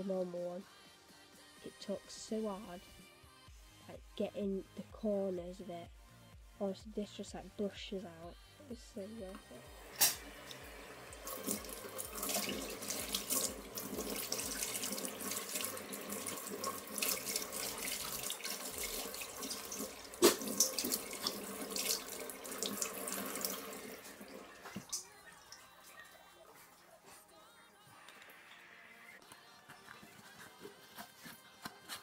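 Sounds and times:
tap water running into sink: 0:09.8 - 0:25.6.

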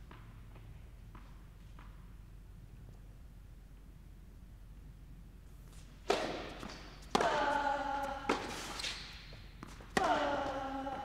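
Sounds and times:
racket striking tennis ball: 0:05.8 - 0:10.7.

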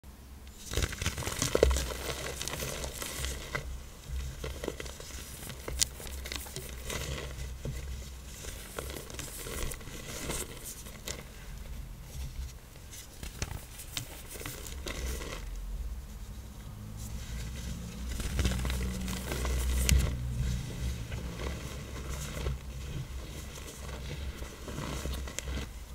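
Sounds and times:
blocks crushing and crackling: 0:00.6 - 0:11.4.

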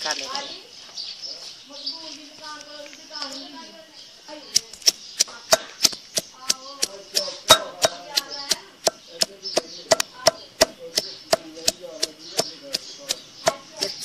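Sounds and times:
pestle pounding in stone mortar: 0:04.5 - 0:14.0.

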